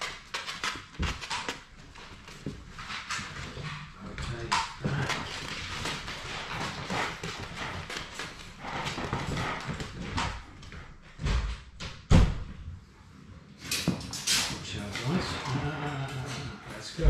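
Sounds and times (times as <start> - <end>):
puppy claws clicking on wood: 0.0 - 10.8.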